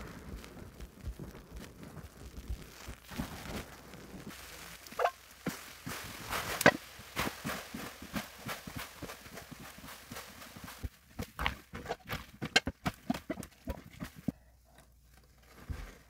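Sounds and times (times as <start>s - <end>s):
sponges squishing in suds: 2.6s - 14.4s.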